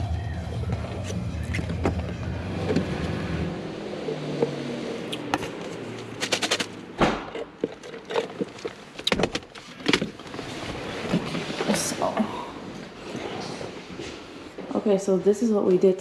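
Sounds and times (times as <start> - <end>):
objects clicking and knocking: 4.3 - 10.3.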